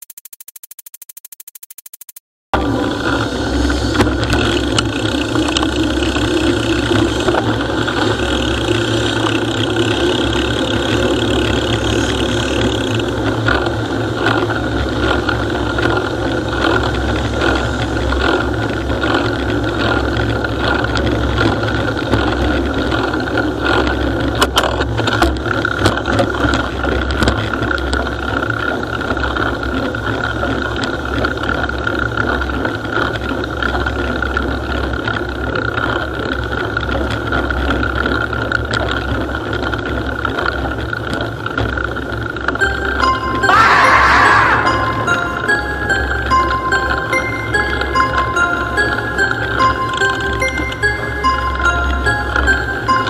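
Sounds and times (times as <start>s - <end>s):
sharp clicks: 0.0s - 2.2s
bicycle rattling: 2.6s - 43.0s
wind and road rumble: 2.6s - 43.1s.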